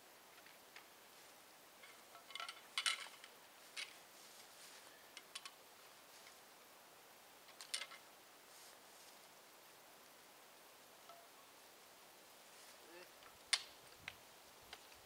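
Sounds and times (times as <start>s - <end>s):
metal camp gear clinking: 1.8s - 4.0s, 7.5s - 8.0s.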